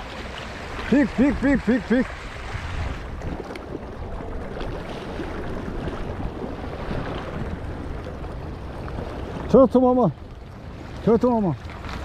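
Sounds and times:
waves lapping against rocks: 0.0s - 12.0s
wind on microphone: 0.7s - 9.5s.

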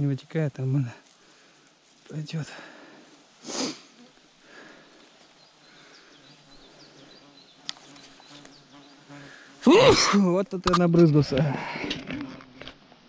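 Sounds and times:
insect buzzing: 1.0s - 10.1s
short hiss: 3.4s - 4.0s.

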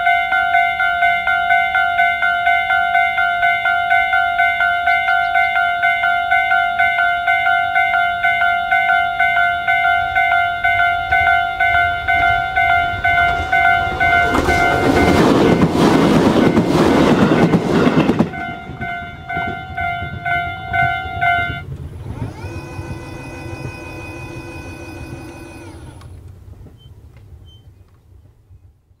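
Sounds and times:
level crossing warning bell: 0.0s - 26.0s
train passing: 0.0s - 26.7s
several-tone gliding hum: 0.0s - 26.9s.

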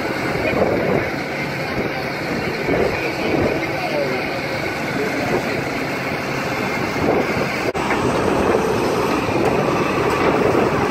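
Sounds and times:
excavator diesel engine running: 0.0s - 10.9s.

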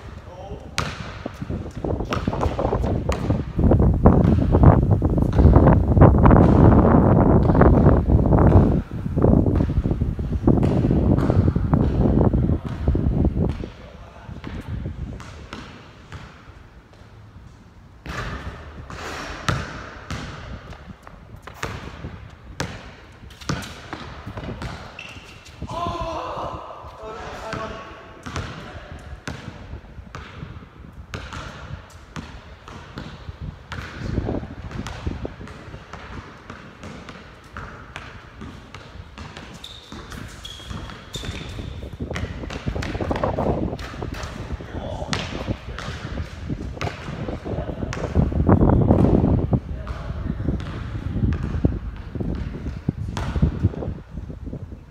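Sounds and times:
basketball dribbling thumps: 0.7s - 13.8s, 14.4s - 16.4s, 18.0s - 25.6s, 27.5s - 54.0s
sneaker squeaks: 22.6s - 25.7s, 38.4s - 46.5s.

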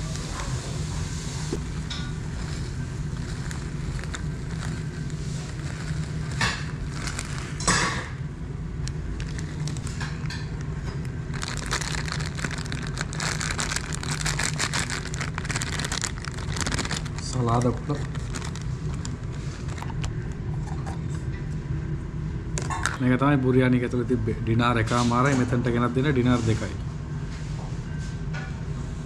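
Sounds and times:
steady low hum: 0.0s - 29.0s
plastic bags rustling: 1.6s - 8.1s, 8.8s - 20.3s.

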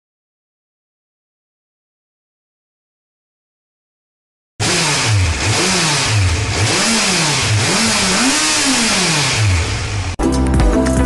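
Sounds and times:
motorcycle engine revving: 4.6s - 10.2s.

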